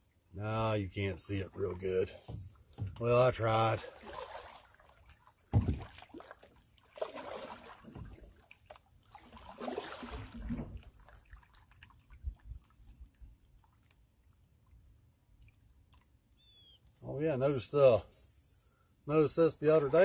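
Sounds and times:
canoe paddle splashing: 0:01.2 - 0:16.8, 0:19.6 - 0:20.0
water dripping and sloshing: 0:01.2 - 0:17.0
low thump: 0:05.5 - 0:05.9.

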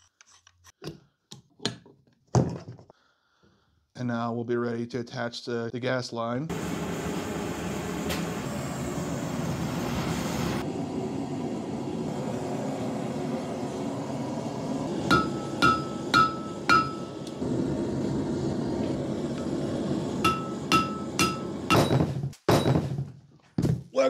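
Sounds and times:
forge burner rushing: 0:06.5 - 0:22.9
hammer ringing on anvil: 0:15.1 - 0:17.3, 0:20.2 - 0:22.7.

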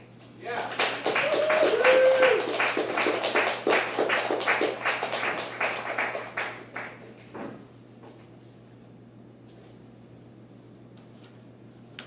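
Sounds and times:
audience applauding: 0:00.5 - 0:07.1.

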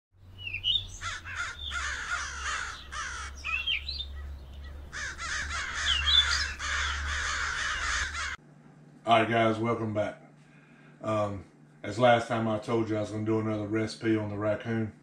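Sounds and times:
low steady hum: 0:00.2 - 0:15.0
crows cawing: 0:00.6 - 0:08.4.

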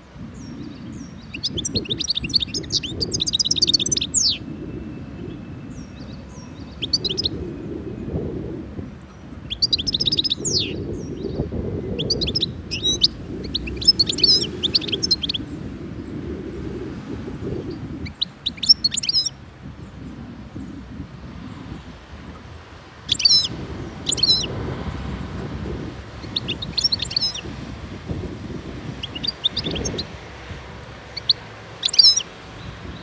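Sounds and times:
low steady rumble: 0:00.0 - 0:33.0
goldfinch twittering song: 0:00.3 - 0:07.6, 0:09.0 - 0:16.2, 0:17.6 - 0:20.0, 0:22.8 - 0:27.8, 0:28.8 - 0:33.0.

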